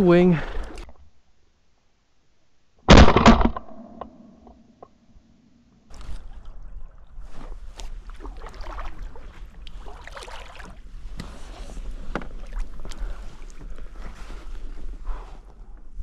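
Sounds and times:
paddle splashing in water: 0:05.9 - 0:14.7.

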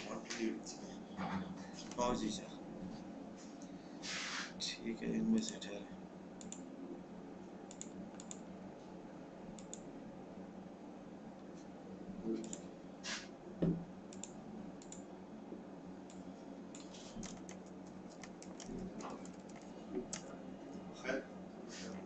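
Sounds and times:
soft thump: 0:13.6 - 0:13.8
keyboard typing: 0:16.7 - 0:20.3.

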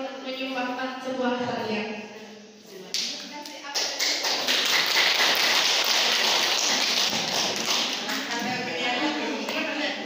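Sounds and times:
audience applauding: 0:04.0 - 0:08.4.

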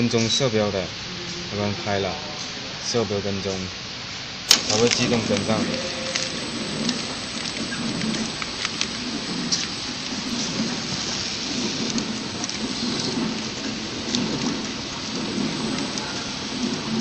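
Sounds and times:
light mechanical ticks: 0:04.5 - 0:17.0
packing machine running: 0:04.5 - 0:17.0.

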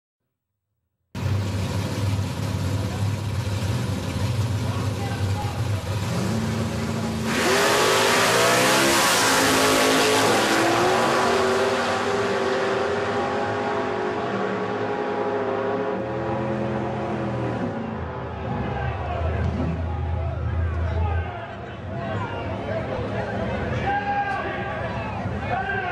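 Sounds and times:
drag racing cars accelerating: 0:01.2 - 0:21.1.

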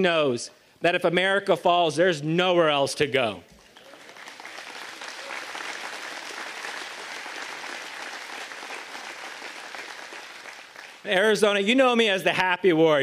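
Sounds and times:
large crowd applauding: 0:03.6 - 0:11.5.

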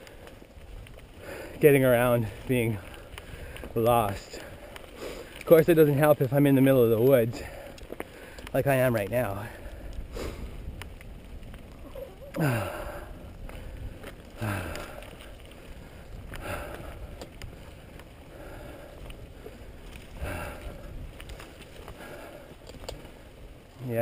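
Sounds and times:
bike rolling over dirt: 0:00.0 - 0:24.0
rider's heavy exhales: 0:04.4 - 0:05.4, 0:09.4 - 0:10.7, 0:11.9 - 0:21.0.

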